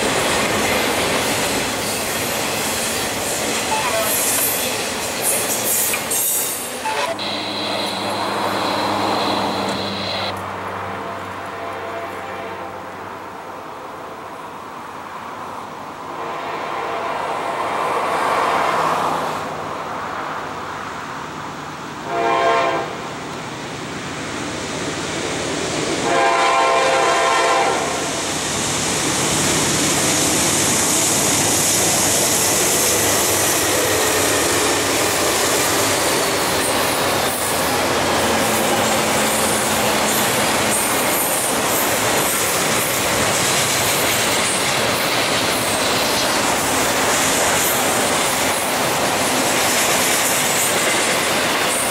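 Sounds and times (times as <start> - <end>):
train wheel clatter: 0.0 - 7.0, 28.6 - 51.9
diesel train passing: 0.0 - 51.9
locomotive air horn blasts: 3.7 - 4.5, 6.8 - 10.3, 10.9 - 12.9, 16.2 - 17.5, 22.1 - 23.0, 26.0 - 28.1.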